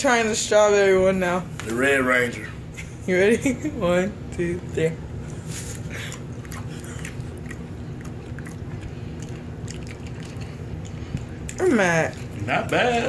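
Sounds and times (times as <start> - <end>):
steady low hum: 0.0 - 13.0
wet mouth chewing clicks: 6.0 - 12.8.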